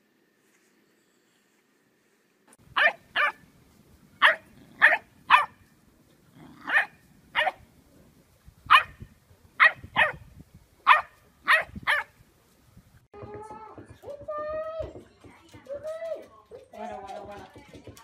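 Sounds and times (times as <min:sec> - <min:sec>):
dog barking: 0:02.8 - 0:03.4, 0:04.2 - 0:05.6, 0:06.6 - 0:07.6, 0:08.7 - 0:09.0, 0:09.6 - 0:10.2, 0:10.9 - 0:12.1.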